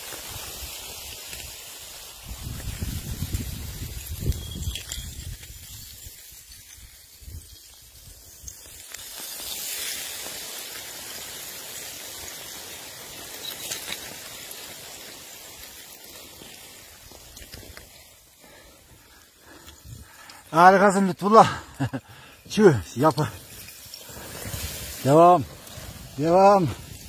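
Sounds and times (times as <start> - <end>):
loose snow sliding hiss: 0.0 - 27.0.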